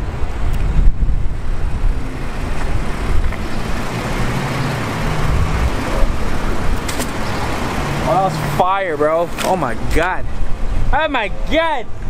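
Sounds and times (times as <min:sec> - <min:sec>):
low rumble of motor vehicles: 0:00.0 - 0:12.0.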